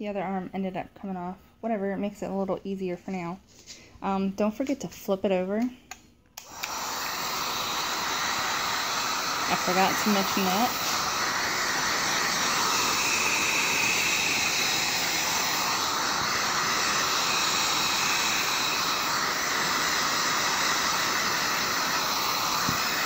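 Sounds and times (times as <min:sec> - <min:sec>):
heat gun blowing air: 0:06.4 - 0:23.0.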